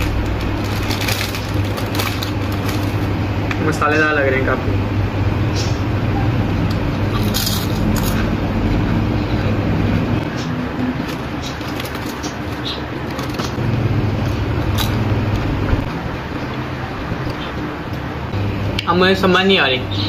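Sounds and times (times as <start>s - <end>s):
potato chips crunching: 0.0s - 3.2s, 7.1s - 8.4s, 10.9s - 13.6s, 14.3s - 15.5s
snack packet crackling: 0.0s - 3.2s, 7.2s - 8.3s, 11.0s - 13.6s
steady low hum: 0.0s - 20.0s.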